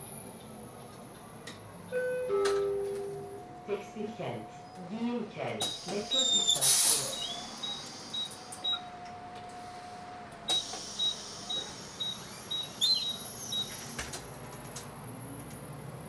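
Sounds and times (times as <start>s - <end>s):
bus cabin hum and rumble: 0.0s - 16.0s
short high electronic beeps: 5.6s - 8.8s.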